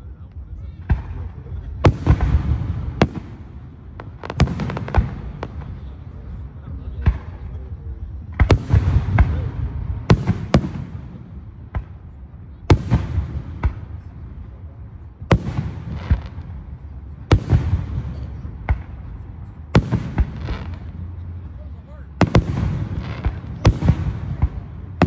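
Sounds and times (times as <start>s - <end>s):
firework shells booming: 8.3s - 12.1s, 12.7s - 14.6s, 15.2s - 21.2s, 22.2s - 25.0s.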